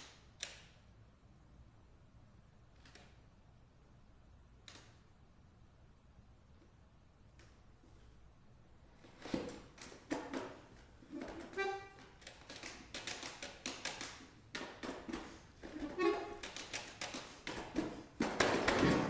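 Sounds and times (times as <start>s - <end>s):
accordion clicks and taps: 11.3s - 18.5s.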